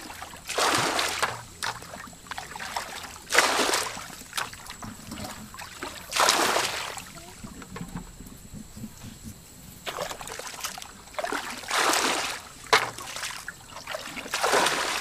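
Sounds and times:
hands splashing in shallow water: 0.0 - 7.2, 9.8 - 15.0.

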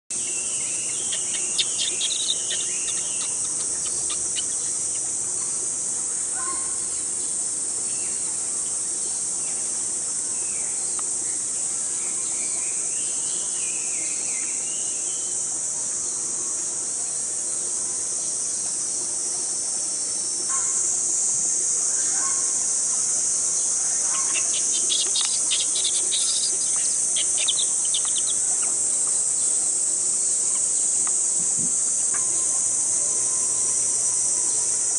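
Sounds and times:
insect chorus: 0.1 - 34.9
baby monkey squealing: 1.0 - 5.0, 24.1 - 28.4.

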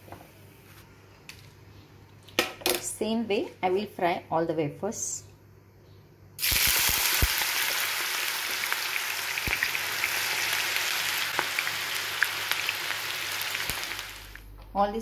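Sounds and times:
banana slices sizzling in oil: 6.4 - 14.4.

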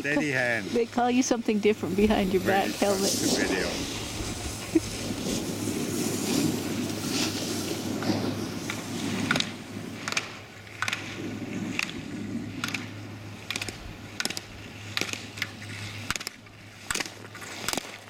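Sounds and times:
ski edges scraping on snow: 1.8 - 12.8, 14.7 - 18.0.

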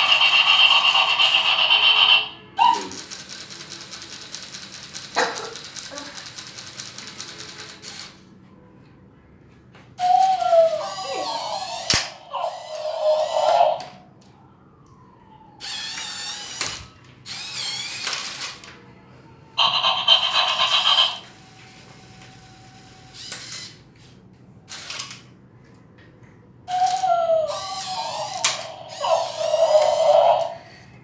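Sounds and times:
toy electronic sound effects: 0.0 - 3.5, 10.0 - 14.0, 15.6 - 18.5, 19.6 - 21.9, 26.7 - 30.8
small toy motors whirring: 0.0 - 8.2, 10.1 - 13.8, 15.6 - 18.7, 19.6 - 23.8, 24.7 - 25.3, 26.7 - 30.8.

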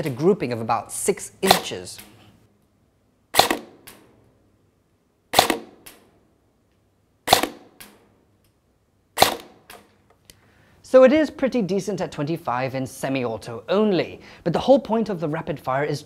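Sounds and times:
airsoft gun shots: 1.5 - 1.8, 3.3 - 4.1, 5.3 - 6.0, 7.2 - 8.0, 9.2 - 9.9.

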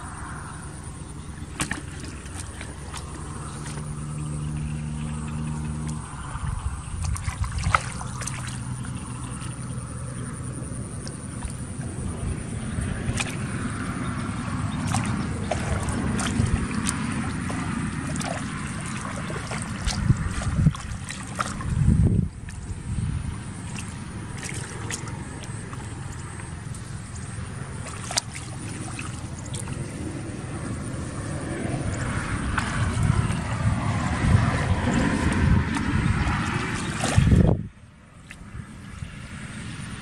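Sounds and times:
wind rumble on microphone: 0.0 - 40.0
hands splashing in water: 1.4 - 4.6, 7.0 - 9.7, 10.9 - 22.7, 23.5 - 30.0, 32.0 - 37.6.

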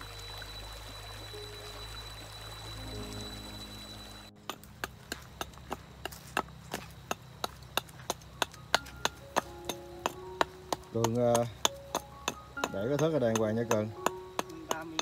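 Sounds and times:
stream water flowing: 0.0 - 15.0
hatchet chopping wood: 4.4 - 15.0.

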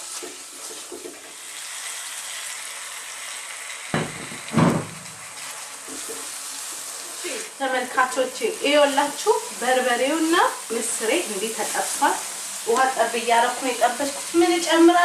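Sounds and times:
lentils sizzling in oil: 0.0 - 15.0.

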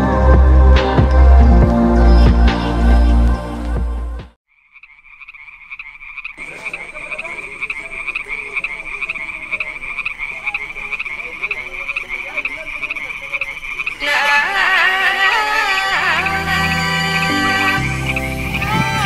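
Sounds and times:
frogs calling: 4.5 - 19.0.

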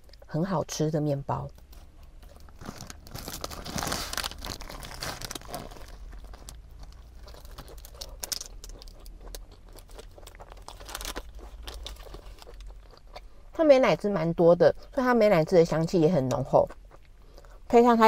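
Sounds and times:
crunching crisp fried food: 1.5 - 13.5
paper wrapper crinkling: 2.3 - 9.1, 9.8 - 12.6.

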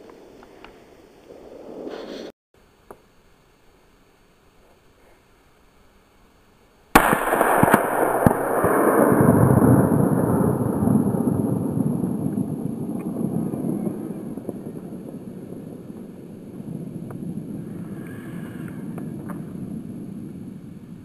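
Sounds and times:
rifle shot with rolling echo: 6.9 - 18.0.

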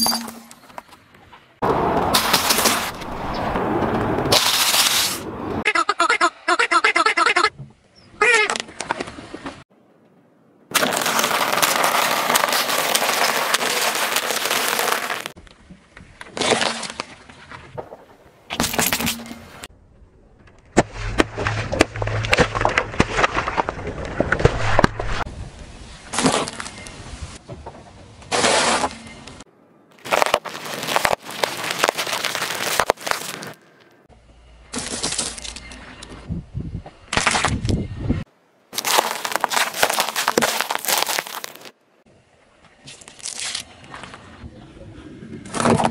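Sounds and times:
cones crunching under car tyre: 1.6 - 5.2, 10.7 - 15.5, 16.2 - 19.7, 20.7 - 25.3, 29.9 - 34.0, 34.7 - 35.8, 37.1 - 37.8, 38.7 - 41.8, 42.8 - 44.2
tyre crunching: 10.7 - 15.4, 30.0 - 34.0, 38.7 - 41.8.

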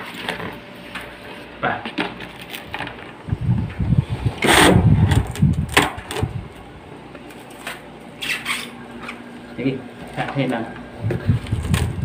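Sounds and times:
low rumbling handling noise: 1.9 - 12.0
plastic wrap crinkling: 2.0 - 3.2.

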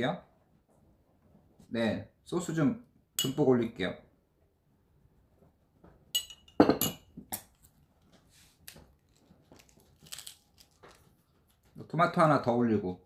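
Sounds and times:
utensils clinking against dishes: 6.2 - 7.1.

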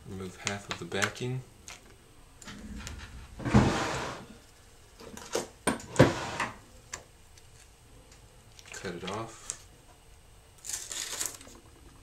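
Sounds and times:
adhesive sheet peeling crackle: 10.6 - 11.4.

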